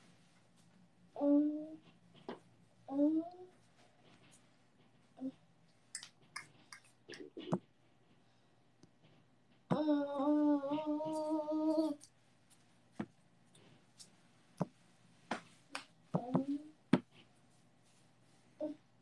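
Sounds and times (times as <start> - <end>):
person humming: 1.2 - 1.8, 9.7 - 12.0, 16.2 - 16.8.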